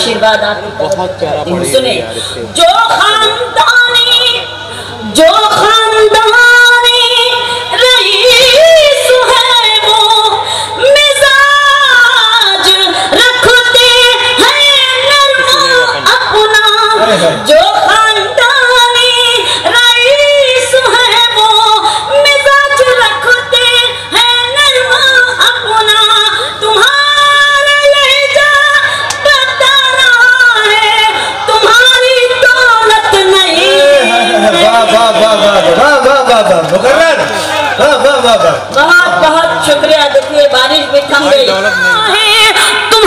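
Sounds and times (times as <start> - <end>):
woman singing: 5.1 - 34.3, 42.0 - 43.0.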